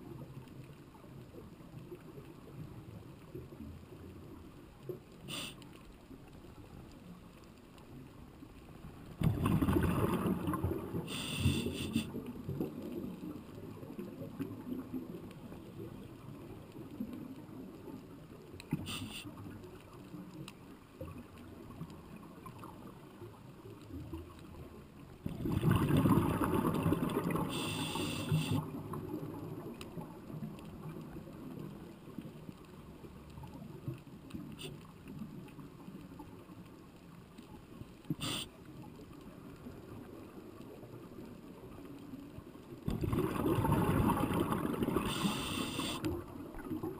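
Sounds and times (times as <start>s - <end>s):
muffled underwater sound: 0.0s - 46.9s
diver exhaling bubbles: 9.2s - 12.2s, 25.3s - 28.8s, 42.9s - 46.2s.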